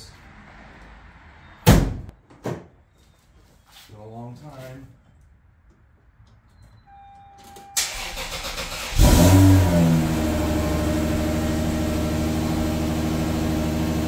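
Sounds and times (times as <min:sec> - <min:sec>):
car engine starting and idling: 0:07.8 - 0:14.0.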